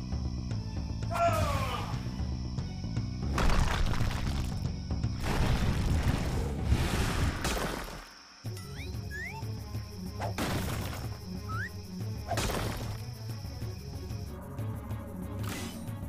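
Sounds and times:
background music with steady beat: 0:08.4 - 0:16.0.

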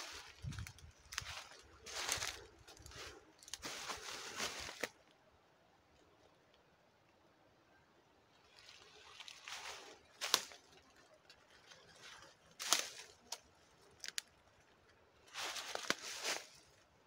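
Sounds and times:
footsteps in dry leaves: 0:00.0 - 0:05.0, 0:08.4 - 0:14.3, 0:15.3 - 0:16.8.

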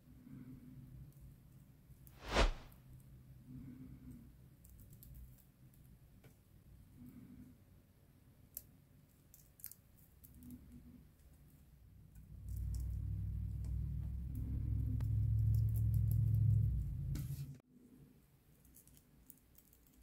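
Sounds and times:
low steady hum: 0:12.4 - 0:17.6.

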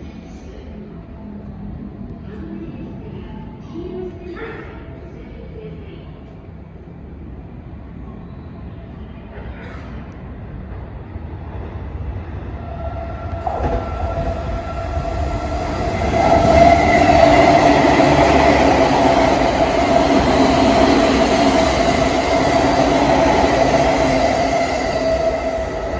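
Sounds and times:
steady train hum: 0:00.0 - 0:25.9
electric train passing: 0:10.4 - 0:25.9
wheels rushing on rail: 0:10.4 - 0:25.9.

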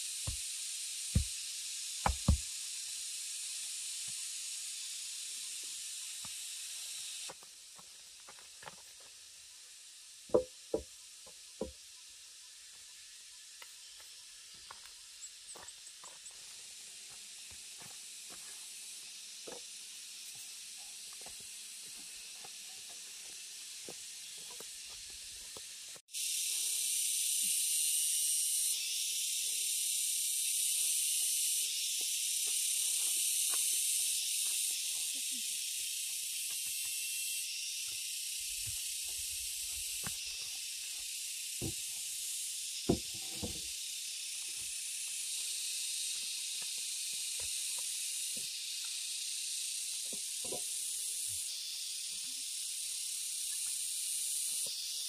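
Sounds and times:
cicadas droning: 0:00.0 - 0:55.0
wooden planks knocking: 0:10.3 - 0:10.9.

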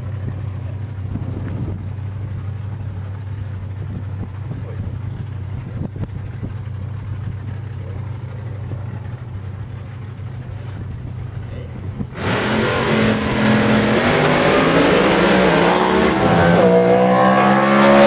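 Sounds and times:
truck engine idling: 0:00.0 - 0:12.2.

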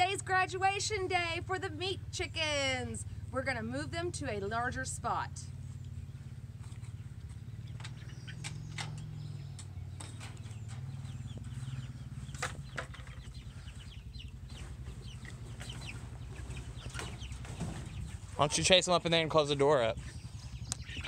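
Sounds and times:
low hum: 0:00.0 - 0:21.0
chickens clucking and peeping: 0:05.5 - 0:21.0.

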